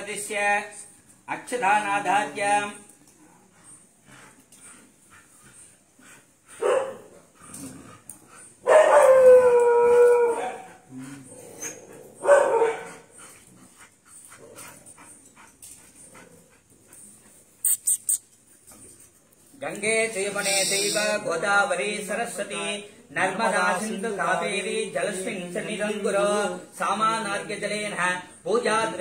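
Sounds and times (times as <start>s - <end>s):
dog howling: 8.7s - 10.7s.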